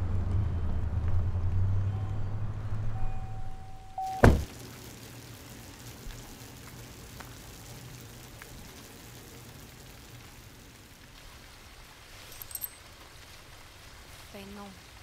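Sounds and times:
low hum: 0.0 - 4.4
rain falling: 0.0 - 15.0
loud thump: 4.2 - 4.5.

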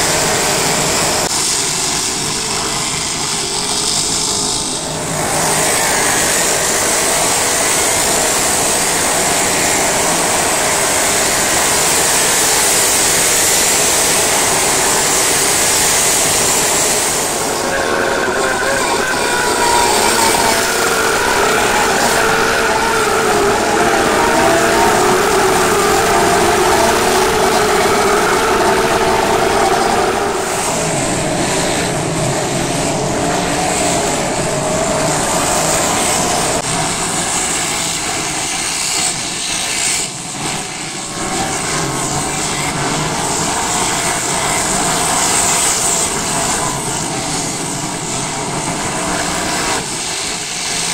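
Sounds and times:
race car engines passing: 4.7 - 38.4.

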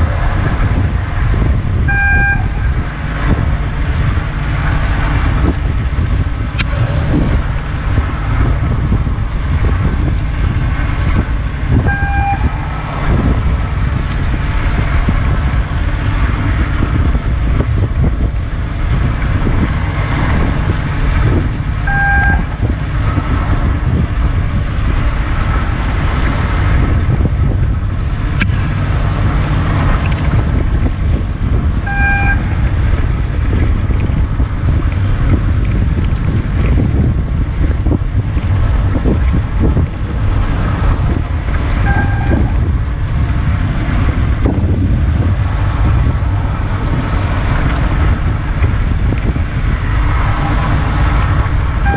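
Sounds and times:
boat engine low rumble: 0.0 - 51.9
wind on microphone: 0.0 - 51.9
short electronic beep: 1.9 - 2.6, 11.9 - 12.5, 21.9 - 22.4, 31.9 - 32.4.

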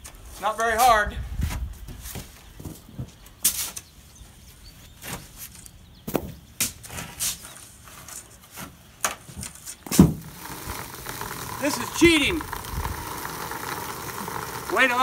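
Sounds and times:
shovels and rake scraping sand: 6.6 - 8.8, 9.6 - 15.0.

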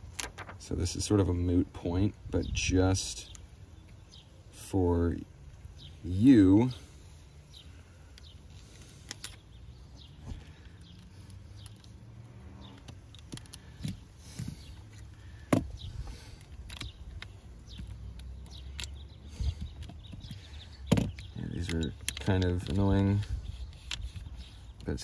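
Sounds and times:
small clicks and taps: 16.4 - 19.0.

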